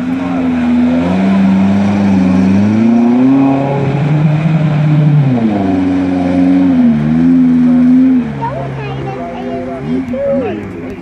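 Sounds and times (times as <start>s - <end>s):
engine revving in mud: 0.0s - 11.0s.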